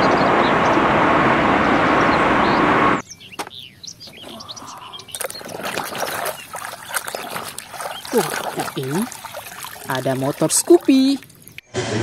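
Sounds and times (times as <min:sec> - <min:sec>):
jet airliner roar with whine: 0:00.0 - 0:03.0
birds chirping: 0:00.0 - 0:11.8
hand stirring water in basin: 0:05.0 - 0:11.6.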